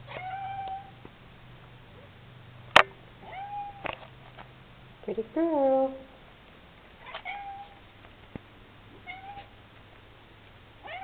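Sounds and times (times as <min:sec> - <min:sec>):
cat meowing: 0:00.0 - 0:00.9, 0:03.2 - 0:03.9, 0:07.0 - 0:07.8, 0:09.0 - 0:09.5.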